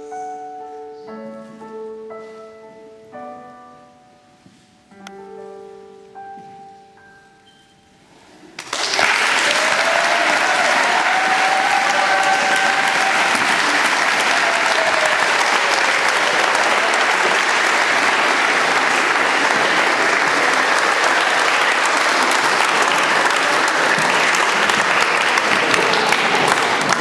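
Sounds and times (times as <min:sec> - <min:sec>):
audience applauding: 0:08.6 - 0:27.0.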